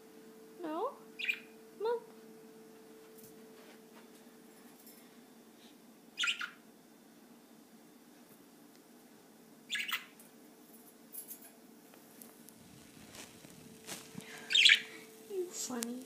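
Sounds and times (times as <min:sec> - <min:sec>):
faint steady hum: 0:00.0 - 0:16.0
budgerigar chirps: 0:01.2 - 0:01.5, 0:06.2 - 0:06.6, 0:09.7 - 0:10.2, 0:14.5 - 0:14.9.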